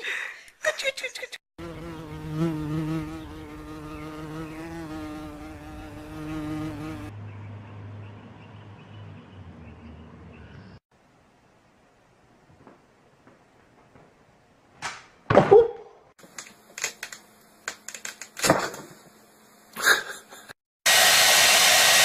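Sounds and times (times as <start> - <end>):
flying insect buzzing: 1.6 - 7.1.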